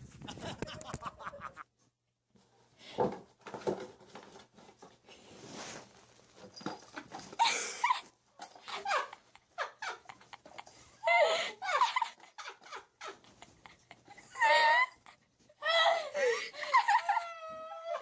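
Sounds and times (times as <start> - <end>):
scuffling and rustling: 4.0 - 7.4.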